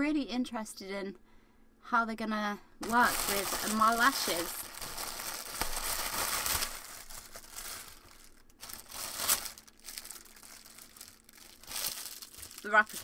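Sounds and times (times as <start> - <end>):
thin plastic wrapper crinkling: 2.8 - 13.0.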